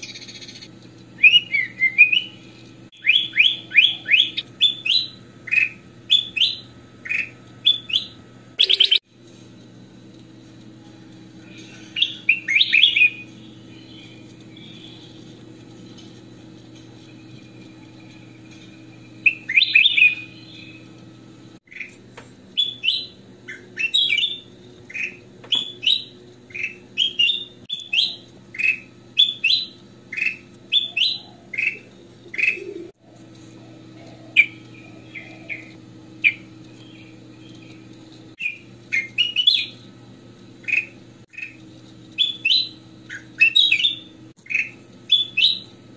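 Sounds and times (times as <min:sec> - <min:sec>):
bird whistled notes: 0:00.0 - 0:02.4, 0:03.0 - 0:09.0, 0:11.6 - 0:15.3, 0:17.0 - 0:20.9, 0:22.6 - 0:32.9, 0:38.4 - 0:39.8, 0:42.2 - 0:45.7
steady low hum: 0:00.0 - 0:45.9
bird chattering song: 0:03.0 - 0:09.0, 0:11.6 - 0:15.3, 0:17.7 - 0:20.9, 0:21.7 - 0:22.0, 0:22.6 - 0:32.9, 0:34.0 - 0:39.9, 0:40.6 - 0:41.6, 0:42.2 - 0:45.7.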